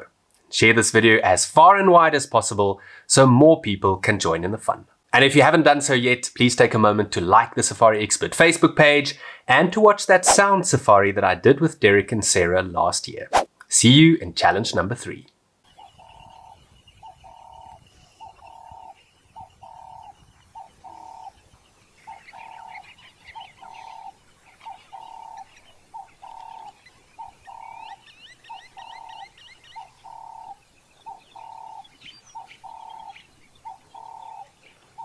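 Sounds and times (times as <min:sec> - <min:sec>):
small birds chirping: 0:15.6 - 0:35.0
dove cooing: 0:15.7 - 0:35.0.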